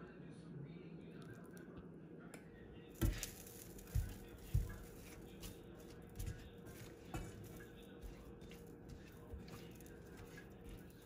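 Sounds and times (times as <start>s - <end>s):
spatula stirring fruit in pan: 3.0s - 11.0s.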